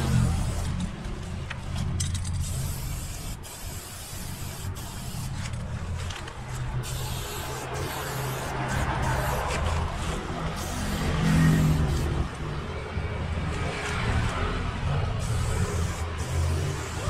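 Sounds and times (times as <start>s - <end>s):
spray paint can hissing: 0.0s - 0.9s, 2.3s - 5.6s, 6.8s - 9.8s, 10.5s - 12.2s, 15.2s - 17.0s.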